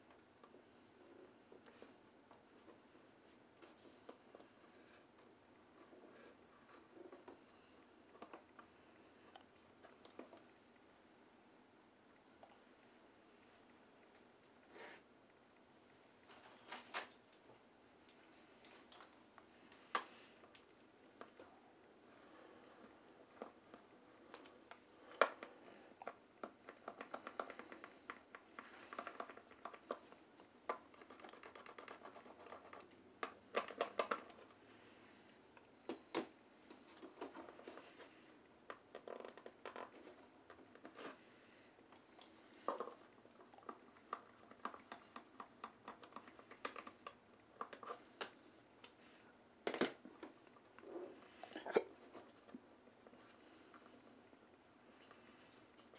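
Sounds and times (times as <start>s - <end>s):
small clicks and taps: 23.3s - 34.6s, 41.9s - 50.6s.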